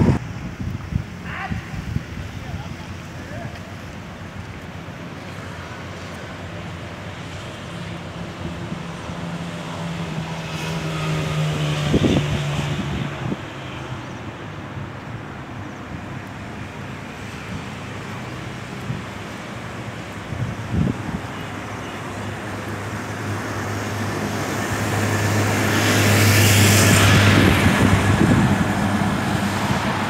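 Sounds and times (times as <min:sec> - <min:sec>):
wind buffeting microphone: 0:00.0 - 0:05.2, 0:06.3 - 0:13.6, 0:14.6 - 0:30.0
traffic: 0:00.0 - 0:30.0
vehicle passing: 0:05.0 - 0:14.0, 0:22.0 - 0:30.0.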